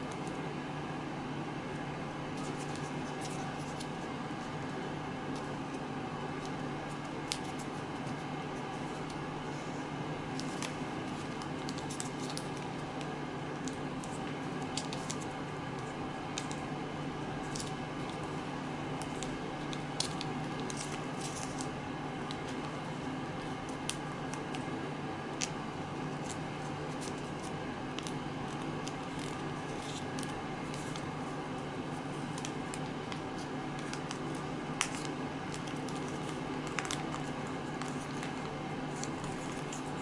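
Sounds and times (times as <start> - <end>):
steady hum: 0.0 - 40.0
paper crackling: 10.3 - 16.6, 19.0 - 24.7, 25.4 - 40.0
paper rustling: 10.4 - 12.7, 19.0 - 21.7, 26.2 - 31.3, 31.9 - 40.0.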